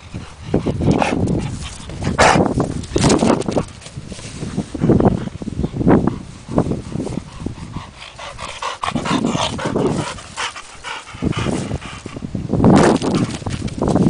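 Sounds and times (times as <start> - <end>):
dog panting: 4.7 - 12.3.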